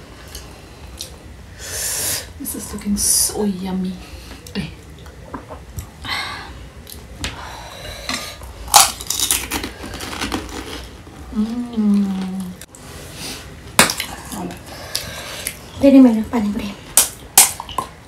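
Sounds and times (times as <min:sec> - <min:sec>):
crisp shells crunching: 0:08.7 - 0:11.0
person humming: 0:11.3 - 0:12.7.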